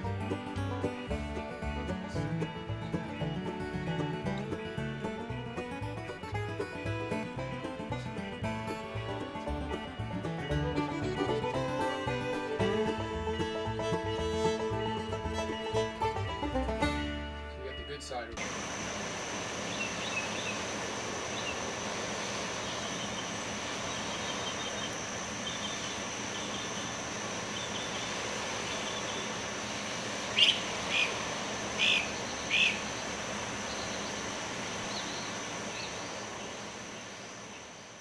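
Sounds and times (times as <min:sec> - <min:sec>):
birds chirping: 0:00.0 - 0:38.0
background hiss: 0:17.4 - 0:38.0
loud bird calls: 0:17.7 - 0:37.8
high insect drone: 0:18.4 - 0:38.0.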